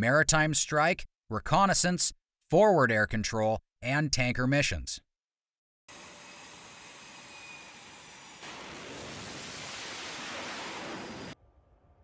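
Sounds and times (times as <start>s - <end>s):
fighter jet engines rushing: 8.3s - 11.4s.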